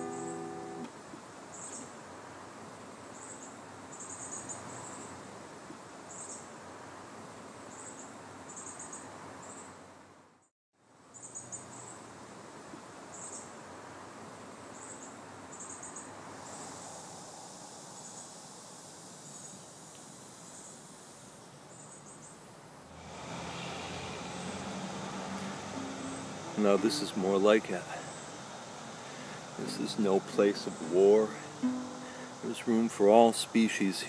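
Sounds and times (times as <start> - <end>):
insects chirping: 3.1 - 5.1, 14.7 - 22.9, 23.7 - 33.7
steady hiss: 12.0 - 34.0.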